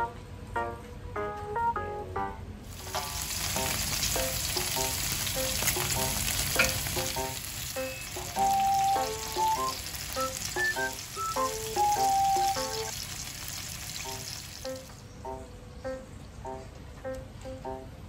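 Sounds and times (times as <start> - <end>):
pork sizzling in fat: 2.7 - 15.0.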